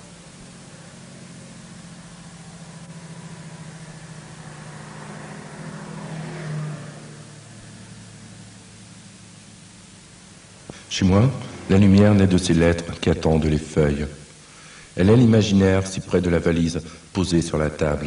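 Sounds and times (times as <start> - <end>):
car engine driving past: 0.0 - 8.7, 11.1 - 12.6.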